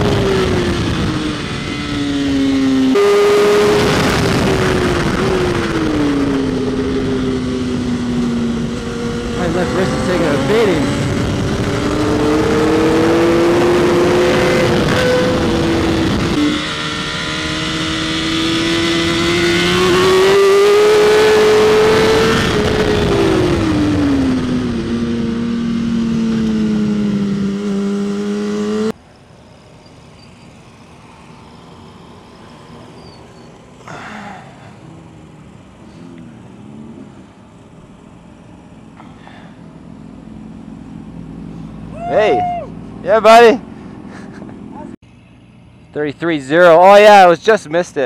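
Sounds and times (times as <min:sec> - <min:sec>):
wind noise: 0:00.0 - 0:28.4
motorcycle engine running hard: 0:00.0 - 0:42.3.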